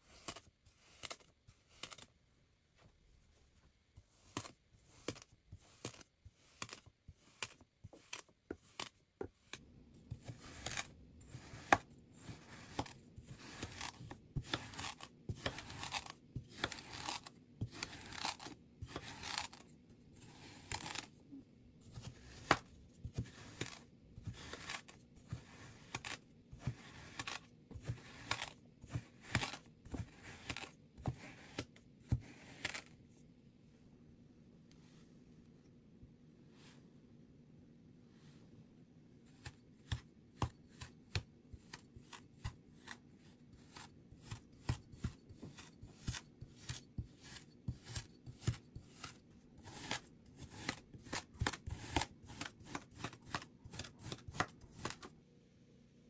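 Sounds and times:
knife cutting through sand: 10.2s - 19.6s, 21.9s - 32.9s, 43.6s - 54.2s.

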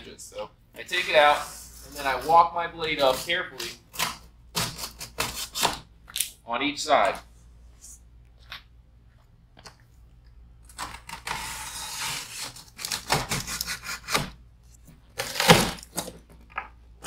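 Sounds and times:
box cutter slicing cardboard: 3.0s - 5.8s, 11.1s - 14.4s, 15.2s - 16.0s
cardboard tearing: 3.0s - 5.8s, 10.8s - 14.4s, 15.2s - 16.1s.

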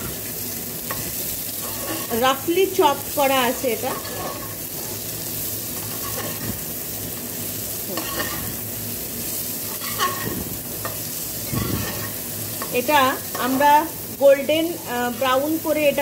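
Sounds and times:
onions sizzling in hot fat: 0.0s - 16.0s
spatula scraping pot: 0.9s - 2.2s, 3.8s - 5.0s, 11.4s - 12.8s.

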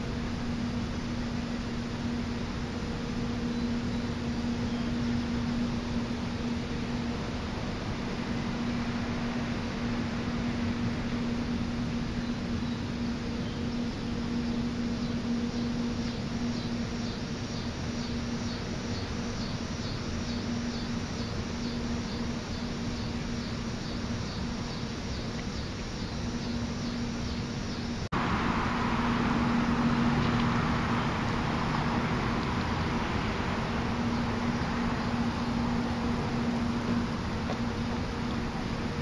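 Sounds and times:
steady low hum: 0.0s - 39.0s
sprinklers spraying water: 28.2s - 39.0s.

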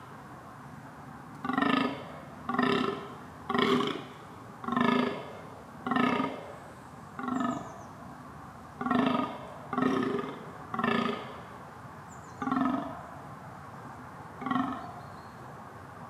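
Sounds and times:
deer groaning: 1.4s - 6.4s, 12.4s - 12.9s.

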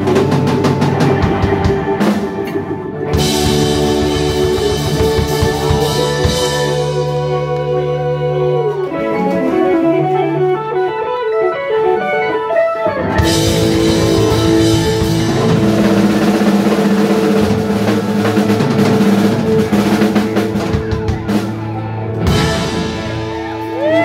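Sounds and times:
drum roll: 0.0s - 7.5s, 13.1s - 24.0s
lead guitar run: 0.0s - 24.0s
rock band playing held chord: 0.0s - 24.0s.

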